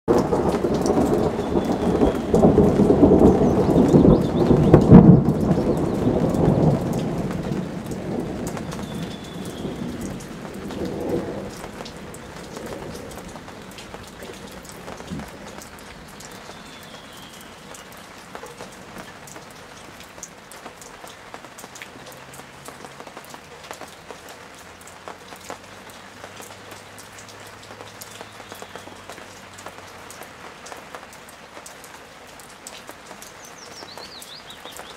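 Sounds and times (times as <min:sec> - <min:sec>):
thunder rumbling: 0:00.1 - 0:20.0
raindrop ticks: 0:00.1 - 0:34.9
steady rain: 0:00.1 - 0:34.9.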